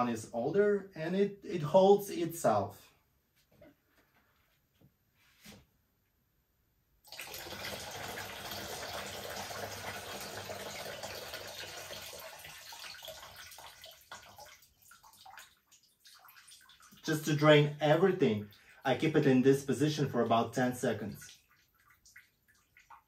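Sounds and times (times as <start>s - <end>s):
water pouring into plastic bucket: 7.0s - 17.6s
water dripping: 7.0s - 19.0s, 20.2s - 23.0s.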